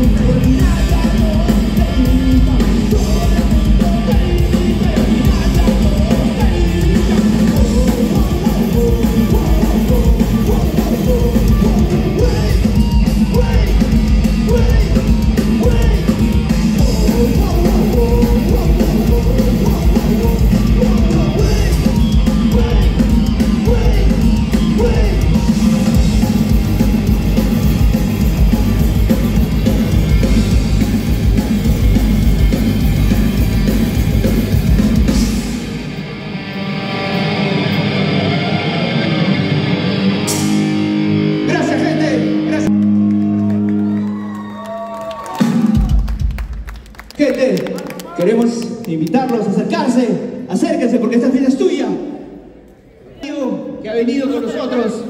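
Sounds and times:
vocals: 0.0s - 35.7s, 41.4s - 42.7s, 47.1s - 55.0s
live rock band playing: 0.0s - 47.1s.

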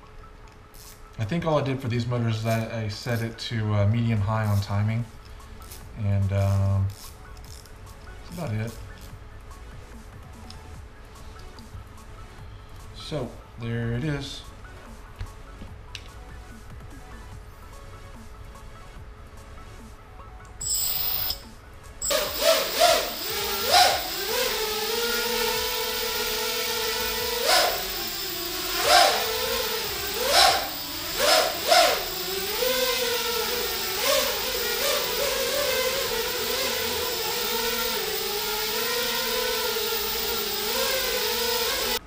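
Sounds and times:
quadcopter motors whining: 20.6s - 42.0s.

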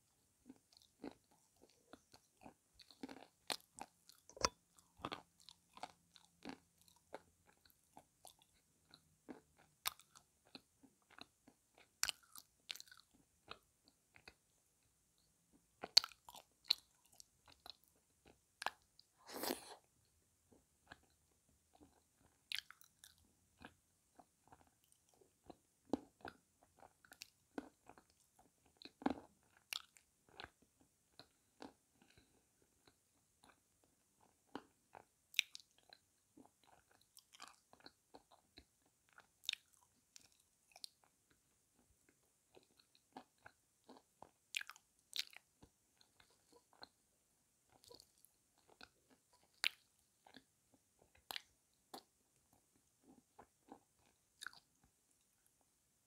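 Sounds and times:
chewing and crunching clay: 0.4s - 14.4s, 15.8s - 19.7s, 20.5s - 47.0s, 47.7s - 55.6s.

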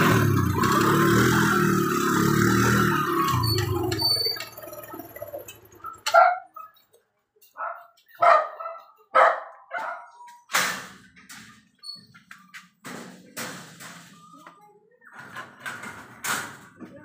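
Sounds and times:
wire-mesh gate rattling: 0.1s - 6.8s, 9.8s - 14.4s, 15.1s - 16.9s
dog barking: 5.8s - 6.8s, 7.6s - 10.3s.

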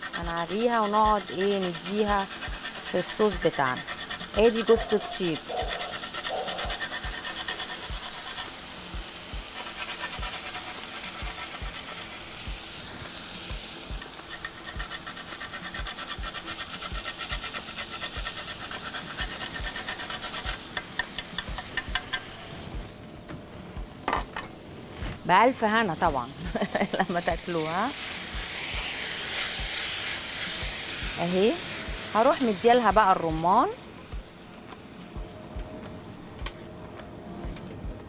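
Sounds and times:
nutmeg grated on metal grater: 0.0s - 12.6s, 13.9s - 22.3s.

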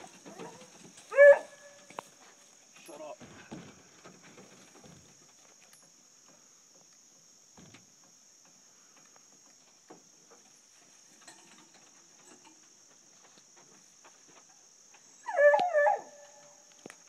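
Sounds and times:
high-pitched insect chorus: 0.0s - 17.0s
faint ticks: 8.4s - 17.0s.

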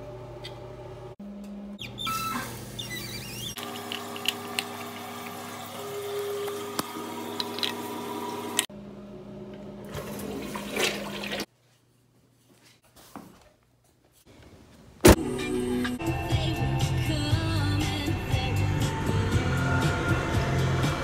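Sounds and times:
toilet flushing: 2.1s - 8.7s, 9.8s - 11.5s.

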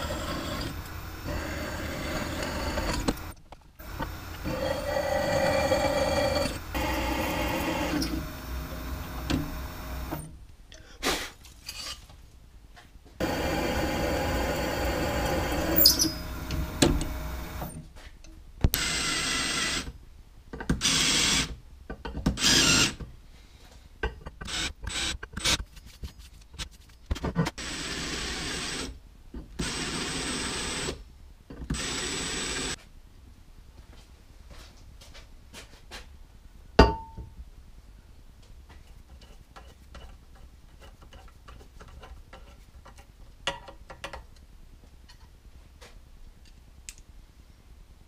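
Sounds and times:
cordless drill driving bolts: 0.0s - 10.3s, 13.2s - 17.8s, 24.5s - 25.1s, 31.7s - 32.8s
drill press running on metal: 0.0s - 10.3s, 13.2s - 17.7s.

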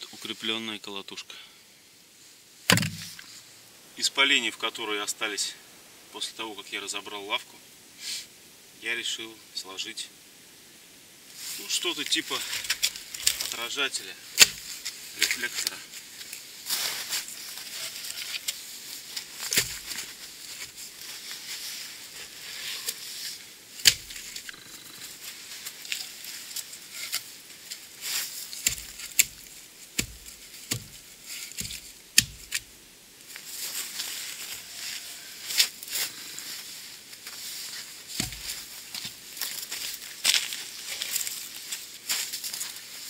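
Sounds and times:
wooden logs knocking: 2.7s - 3.2s, 28.6s - 32.6s, 38.2s - 39.2s
boots crunching in snow: 33.3s - 43.0s.

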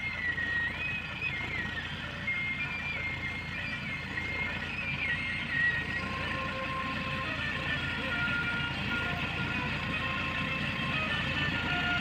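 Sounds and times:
melody of high held notes: 0.0s - 12.0s
tractor diesel engine under load: 0.0s - 12.0s.

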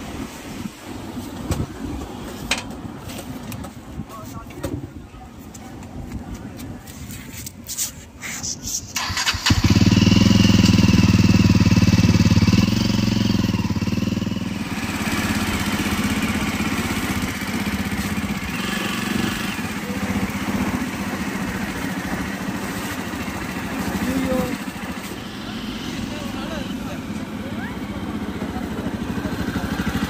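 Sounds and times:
motorcycle engine idling: 9.0s - 30.0s.

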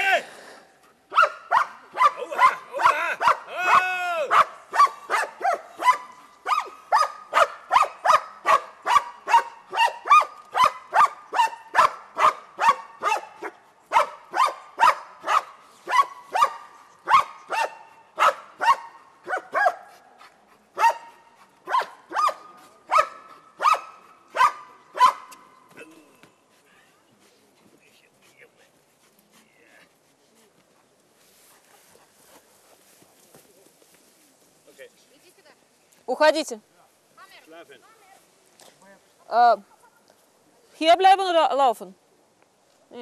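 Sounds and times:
dog barking sharply: 1.1s - 19.9s, 20.8s - 25.4s.

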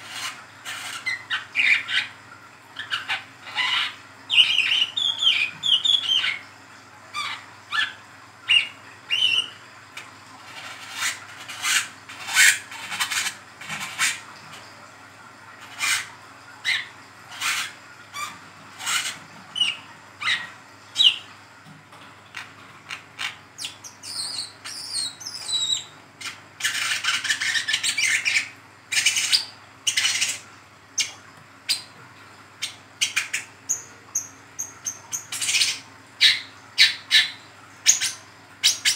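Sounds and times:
bird chirping and twittering: 2.8s - 6.4s, 7.2s - 9.6s, 15.7s - 21.3s, 23.2s - 30.4s, 32.6s - 38.9s.

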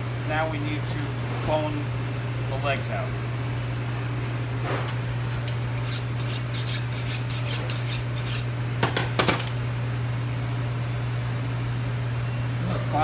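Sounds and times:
knife scraping on honing steel: 5.8s - 8.5s.

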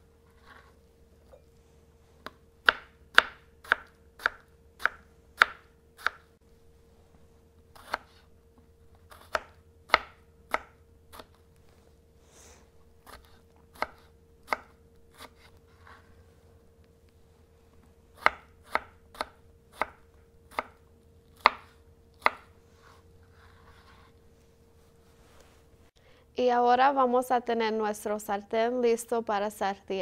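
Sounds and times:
knife chopping on plastic board: 9.1s - 11.4s, 21.4s - 22.5s.

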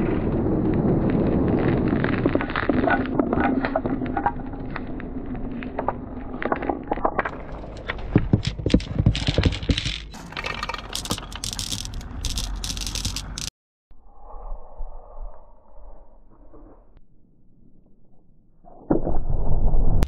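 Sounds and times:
marbles knocking along wooden rail: 6.5s - 13.5s
glass marbles rolling and clacking: 7.2s - 13.5s
glass marbles clinking: 8.4s - 13.5s.

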